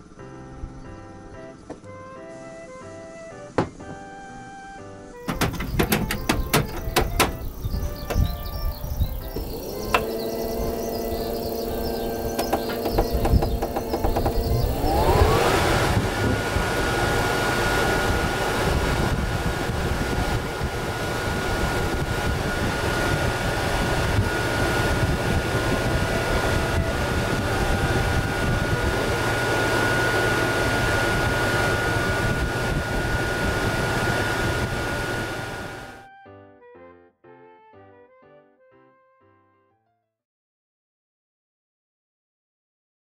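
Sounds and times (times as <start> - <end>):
air rushing from vents: 5.1 - 36.0
thin motor whine: 5.1 - 36.0.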